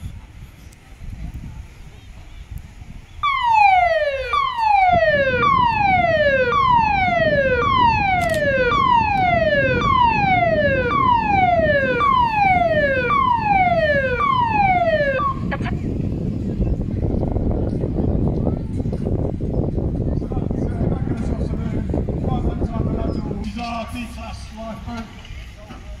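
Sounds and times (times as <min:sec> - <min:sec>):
siren with falling whoop: 0:03.2 - 0:15.6.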